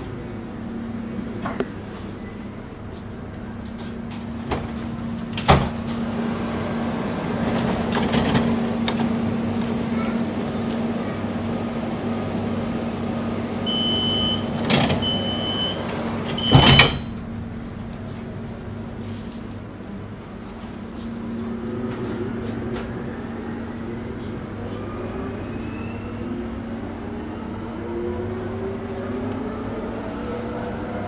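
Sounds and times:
sliding doors shutting with thump: 0:04.4 - 0:06.0, 0:13.7 - 0:17.2
door warning tone beeps: 0:13.6 - 0:17.1.

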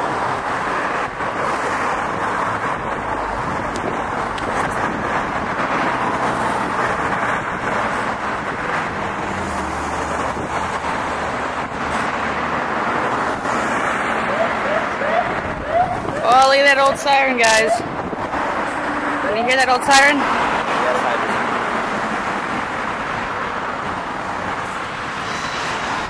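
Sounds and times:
wind on microphone: 0:00.0 - 0:19.3
fire truck engine hum: 0:00.0 - 0:19.4
road traffic noise: 0:00.0 - 0:26.0.

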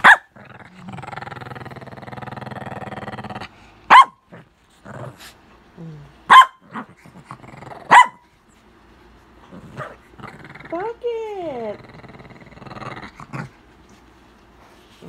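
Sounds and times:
dog barking sharply: 0:00.0 - 0:00.3, 0:03.9 - 0:04.2, 0:06.3 - 0:06.6, 0:07.9 - 0:08.2
dog growling: 0:00.0 - 0:08.0, 0:09.4 - 0:13.7.

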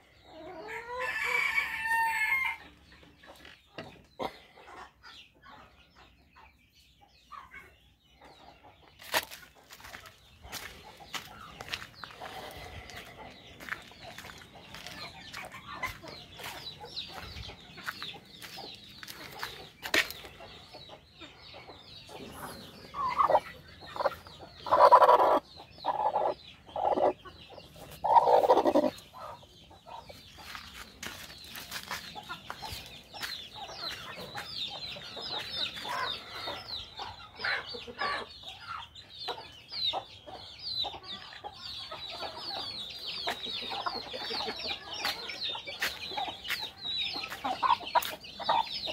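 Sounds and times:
chicks peeping and clucking: 0:00.0 - 0:48.9
loud hen calls: 0:28.0 - 0:29.0.

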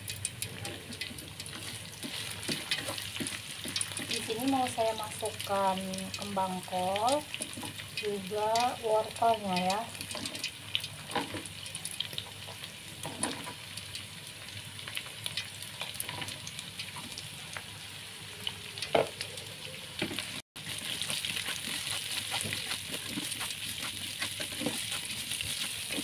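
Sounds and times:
food sizzling in a frying pan: 0:00.0 - 0:26.0
spatula scraping and knocking pan: 0:01.0 - 0:05.4, 0:20.1 - 0:26.0.

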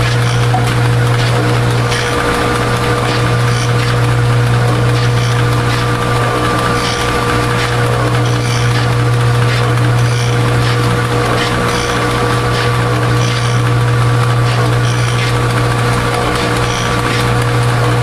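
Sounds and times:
mixer humming and whining: 0:00.0 - 0:18.0.

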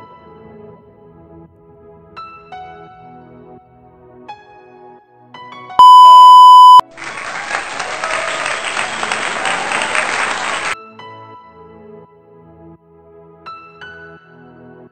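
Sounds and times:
soft calm background music: 0:00.0 - 0:05.8, 0:10.8 - 0:14.9
loud electronic beep: 0:05.8 - 0:06.8
applause: 0:05.8 - 0:10.8.

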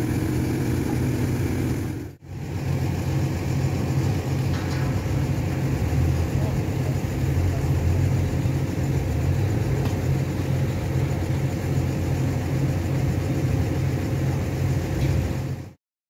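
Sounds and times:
truck engine rumbling: 0:00.0 - 0:15.8.

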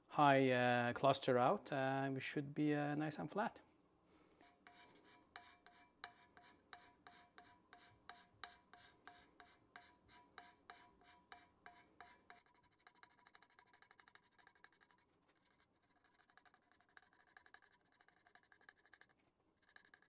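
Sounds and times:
hand scraper strokes on metal: 0:04.4 - 0:14.4.

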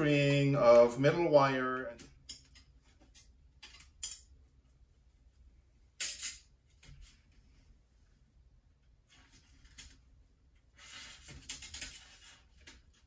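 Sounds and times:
wire scraping on metal: 0:10.7 - 0:13.0.

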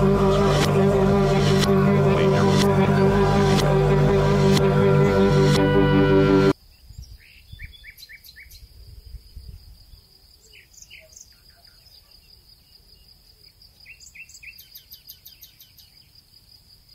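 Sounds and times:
low rumble: 0:00.0 - 0:06.6
small bird chirping: 0:06.7 - 0:08.7, 0:13.8 - 0:16.2.

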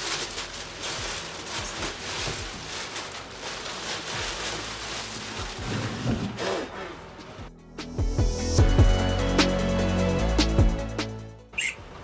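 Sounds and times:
plastic bin bag rustling: 0:00.0 - 0:06.7.

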